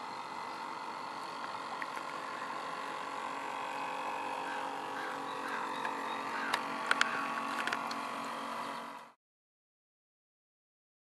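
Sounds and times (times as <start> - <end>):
steady electrical hum: 0.0 - 9.2.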